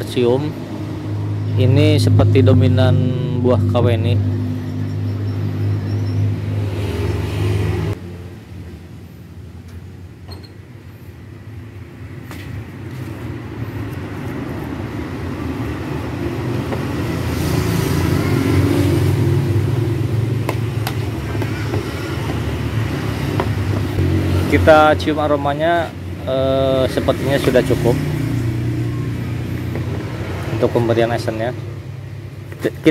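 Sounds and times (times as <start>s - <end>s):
engine approaching: 0.0s - 9.6s, 11.2s - 32.9s.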